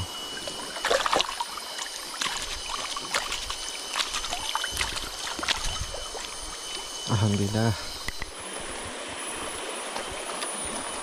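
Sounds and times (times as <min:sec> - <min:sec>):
river water flowing: 0:00.0 - 0:07.1
sharp water splashes: 0:00.7 - 0:06.8.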